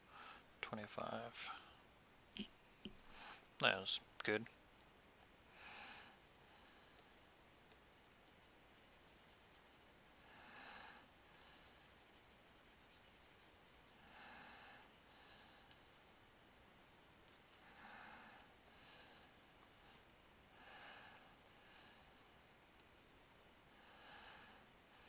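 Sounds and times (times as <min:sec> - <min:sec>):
person breathing softly: 0:00.0 - 0:00.6, 0:03.0 - 0:03.6, 0:05.5 - 0:07.3, 0:10.1 - 0:16.3, 0:17.5 - 0:22.5, 0:23.7 - 0:25.0.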